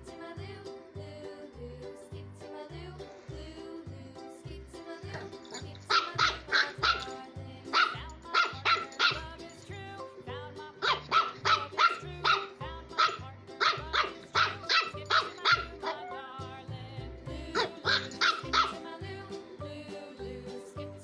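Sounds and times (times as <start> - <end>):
puppy barking: 5.8 - 9.3, 10.8 - 16.2, 17.6 - 18.8.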